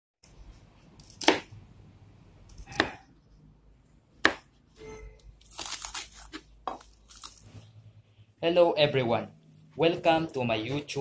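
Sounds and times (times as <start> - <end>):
knife chopping on plastic board: 1.0 - 1.5, 2.6 - 3.0, 4.2 - 4.5.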